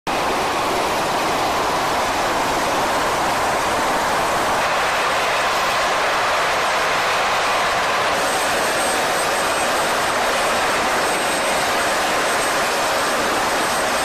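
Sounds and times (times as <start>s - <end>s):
loud rushing hiss: 0.2s - 14.0s.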